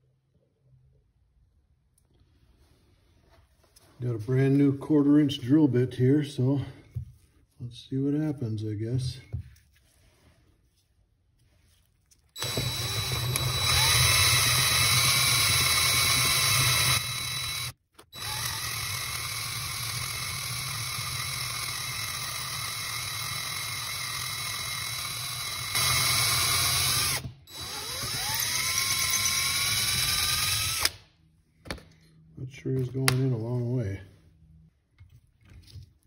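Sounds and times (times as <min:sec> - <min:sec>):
electric drill drilling metal: 0:12.4 - 0:31.0.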